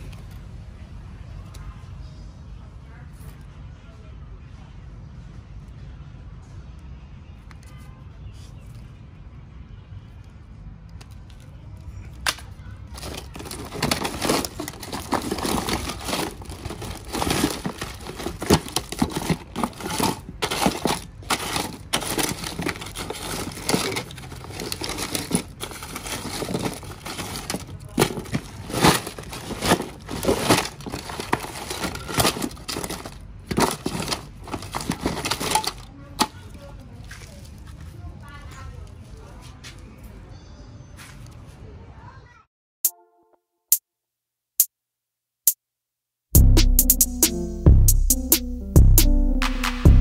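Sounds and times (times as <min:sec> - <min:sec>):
plastic bags crinkling: 0:12.9 - 0:39.0
phone parts knocking together: 0:13.0 - 0:36.4.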